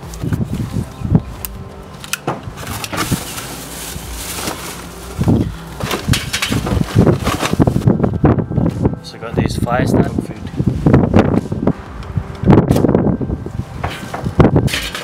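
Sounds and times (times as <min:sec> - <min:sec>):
plastic bag rustling: 0:02.5 - 0:08.1
cardboard box rustling: 0:02.6 - 0:07.9
charcoal clattering into metal grill: 0:05.8 - 0:07.6.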